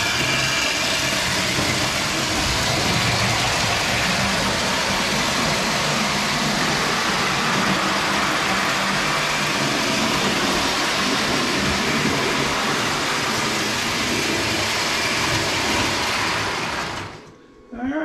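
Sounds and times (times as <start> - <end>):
toy train running on metal track: 0.0 - 17.3.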